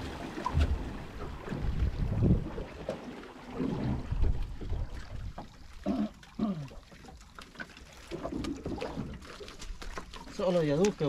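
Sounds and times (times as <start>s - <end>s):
wind rumbling on microphone: 0.0s - 2.9s, 3.6s - 5.4s
water moving around boat: 0.0s - 11.0s.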